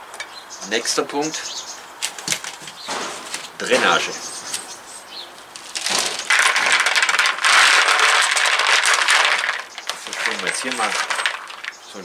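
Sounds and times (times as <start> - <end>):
small grains rattling into pot: 5.6 - 12.0.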